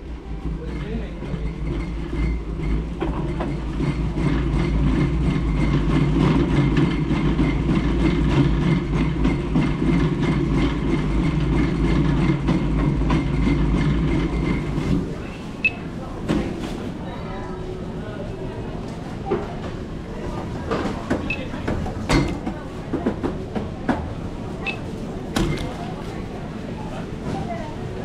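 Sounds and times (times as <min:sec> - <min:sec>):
trolley wheels rumbling: 0:00.0 - 0:28.0.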